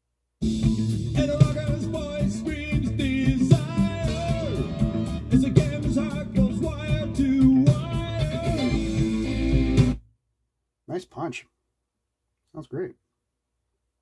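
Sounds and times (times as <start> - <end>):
rock song from vinyl record: 0.4 - 10.0.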